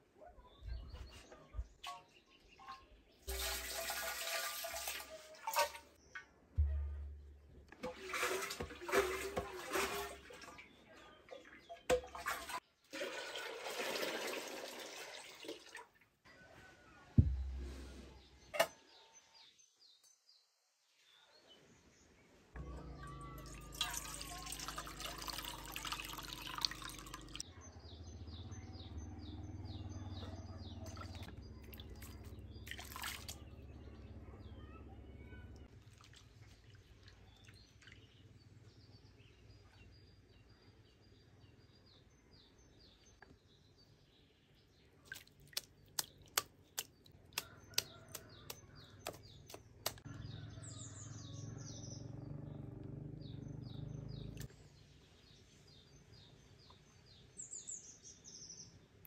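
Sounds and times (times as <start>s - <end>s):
liquid pouring into metal pot: 3.3s - 5.8s, 7.8s - 10.5s, 11.9s - 15.9s, 23.3s - 27.4s, 31.0s - 33.4s
sloshing and dripping: 3.3s - 6.0s, 7.7s - 16.2s, 23.4s - 27.4s, 30.8s - 33.6s, 35.6s - 38.2s, 45.0s - 50.0s.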